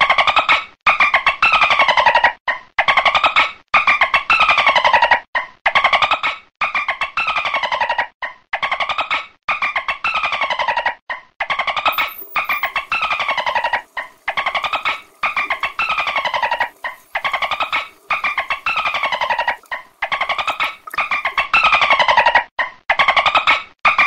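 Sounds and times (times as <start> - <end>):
dolphin clicking chatter: 11.9 - 21.5.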